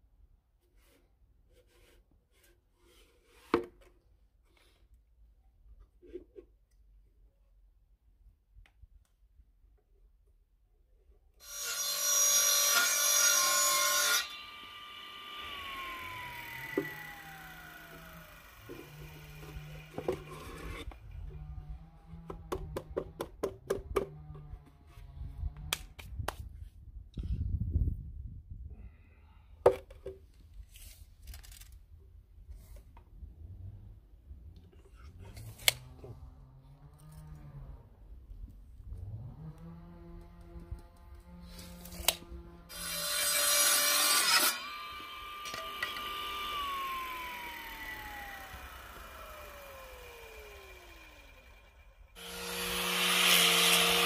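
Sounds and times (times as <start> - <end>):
saw blade spinning down: 11.4 - 20.9, 41.7 - 54.0
table saw cutting wood: 11.4 - 22.5, 39.0 - 54.0.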